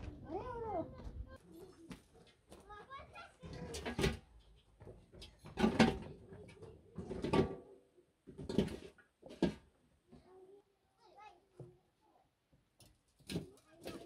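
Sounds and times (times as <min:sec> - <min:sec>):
dung cakes clattering into metal basin: 0:12.9 - 0:14.0.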